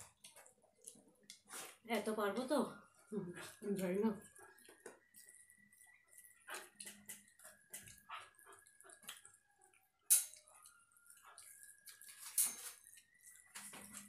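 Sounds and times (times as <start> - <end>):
hands squishing wet rice: 3.4 - 14.0
mouth smacks of eating: 8.7 - 9.4.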